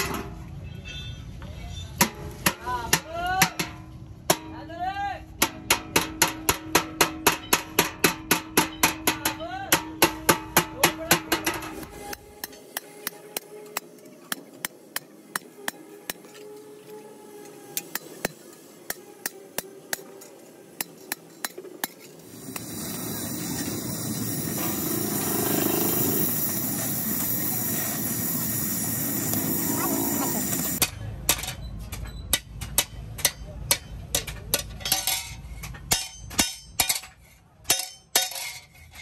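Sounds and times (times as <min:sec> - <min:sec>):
hammer striking steel: 0:02.0 - 0:04.6, 0:05.3 - 0:16.5, 0:17.4 - 0:38.7
hammer tapping steel punch: 0:05.4 - 0:16.3.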